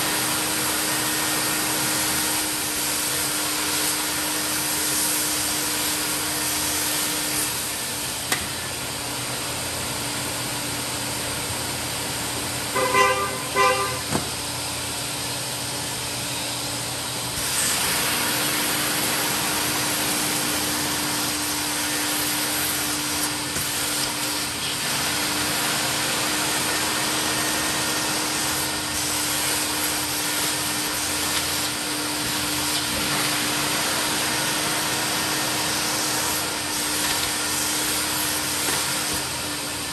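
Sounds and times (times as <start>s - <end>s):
carpet extractor motor humming: 0.0s - 39.9s.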